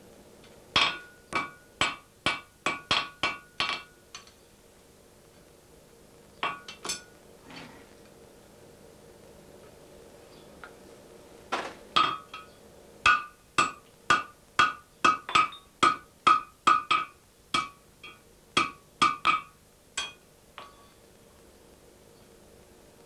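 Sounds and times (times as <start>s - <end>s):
hammer striking anvil: 0.8s - 3.9s.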